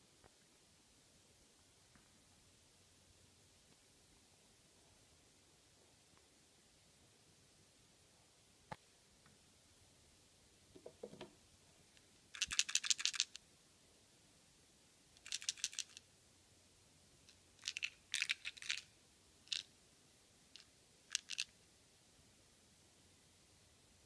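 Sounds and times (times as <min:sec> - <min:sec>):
plastic camera clicking and rattling: 0:12.4 - 0:13.4.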